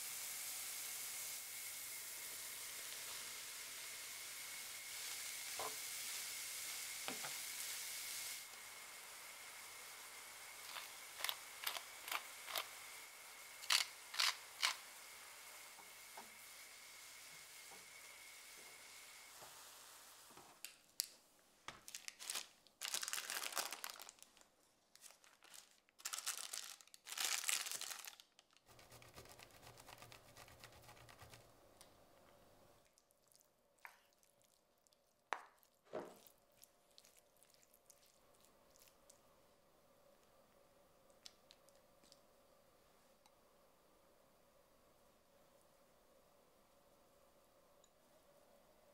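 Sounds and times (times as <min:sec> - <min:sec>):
vegetables sizzling in a frying pan: 0:00.0 - 0:20.4
baking parchment crinkling: 0:10.6 - 0:12.7, 0:13.6 - 0:14.8, 0:21.7 - 0:31.5.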